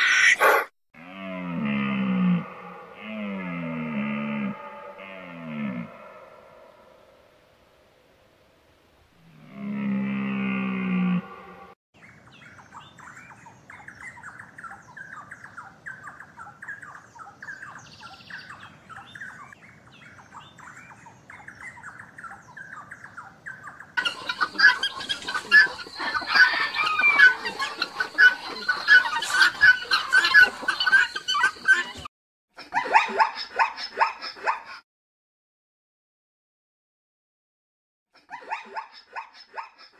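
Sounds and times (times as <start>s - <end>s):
birds chirping: 11.2s - 32.1s
chorus of many birds: 11.5s - 32.1s.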